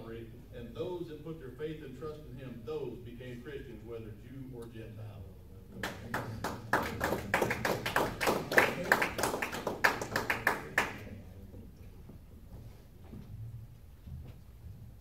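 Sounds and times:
small audience clapping: 5.8s - 11.2s.

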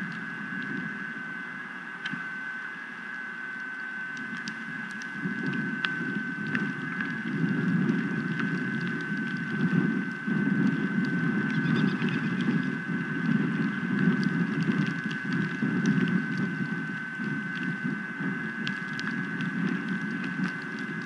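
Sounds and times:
wind buffeting microphone: 5.1s - 21.0s.

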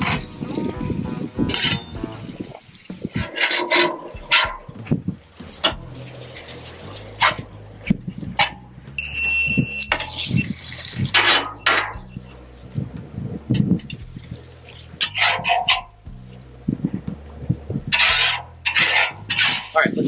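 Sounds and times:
metal spatula scraping griddle: 0.0s - 8.6s, 15.0s - 16.0s, 17.9s - 20.0s.

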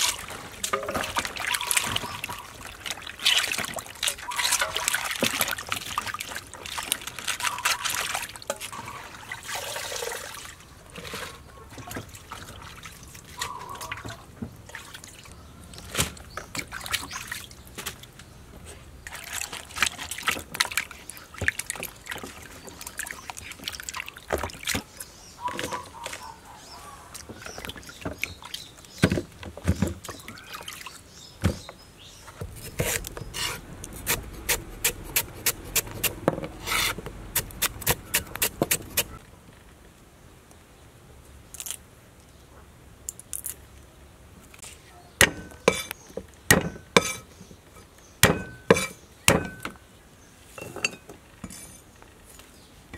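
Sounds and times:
hands washing vegetables in water: 0.0s - 39.2s
knife chopping on wooden board: 32.4s - 39.1s.

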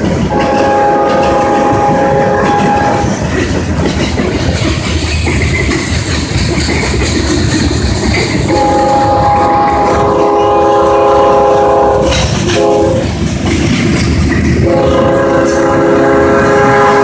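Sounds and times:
train cars rumbling over rails: 0.0s - 17.0s
locomotive air horn blasts: 0.3s - 3.1s, 8.5s - 13.1s, 14.6s - 17.0s.

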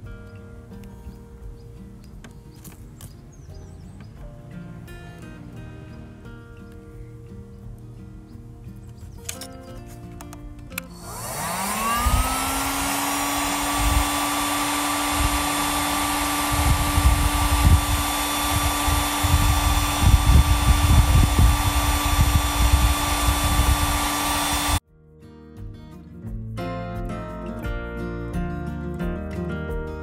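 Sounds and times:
heat gun fan whining: 10.7s - 24.8s
low rumbling: 11.0s - 24.8s.

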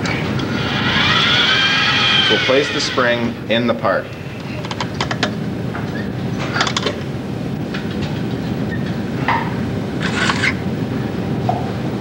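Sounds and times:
robot arm mechanical whir: 0.4s - 3.2s.

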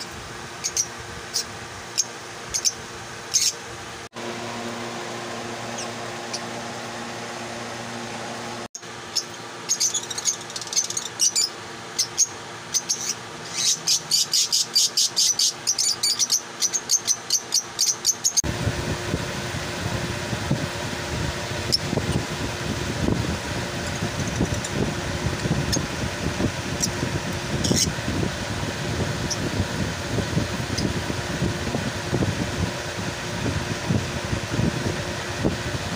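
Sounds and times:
lovebirds chirping: 0.6s - 3.6s, 9.1s - 18.4s.

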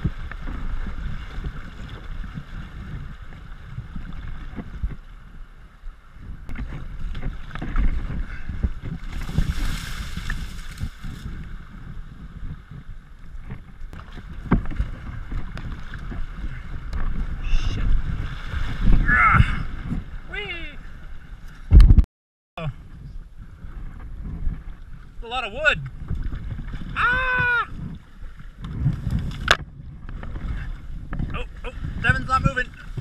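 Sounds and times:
wind on microphone: 0.0s - 22.0s, 22.6s - 33.0s
boat brushing through branches: 9.0s - 11.4s.

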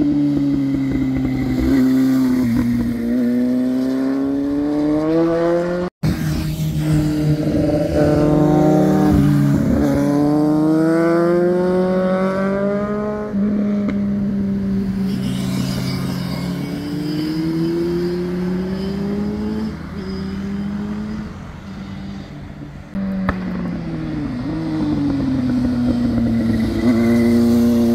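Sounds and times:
motorcycle engines accelerating: 0.0s - 27.9s
passing traffic: 0.0s - 27.9s.

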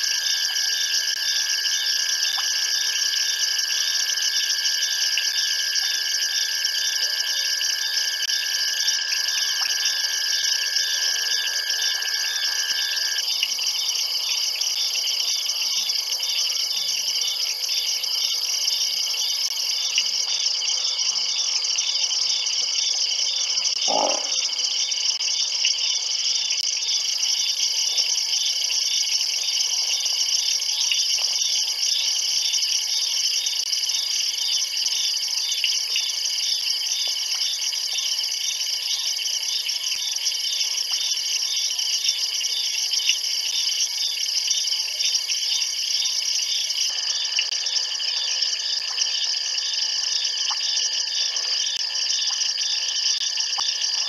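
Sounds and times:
insects trilling: 0.0s - 54.0s
repeating cricket chirp: 0.0s - 54.0s.

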